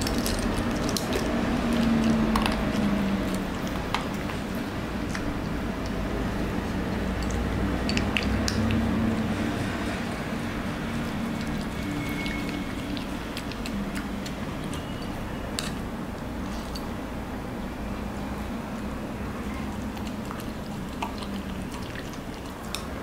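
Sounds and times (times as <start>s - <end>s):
dog licking and eating: 10.6s - 15.3s, 19.4s - 23.0s.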